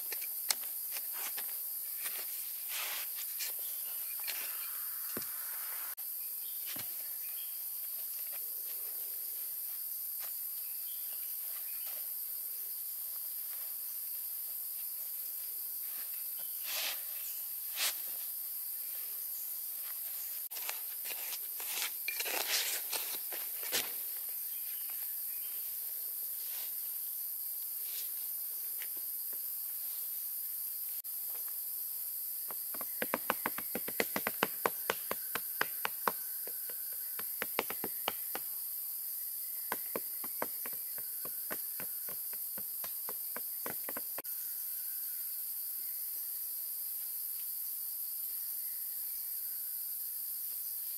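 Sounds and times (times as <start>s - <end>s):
forest insects droning: 0.0s - 50.9s
shovel digging sandy soil: 20.5s - 24.0s.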